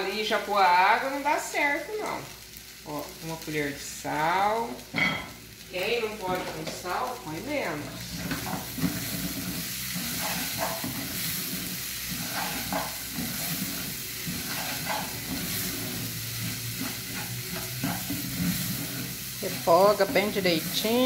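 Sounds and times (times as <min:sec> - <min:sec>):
rice sizzling in oil: 0:00.0 - 0:21.0
wooden spoon scraping metal pan: 0:08.0 - 0:21.0.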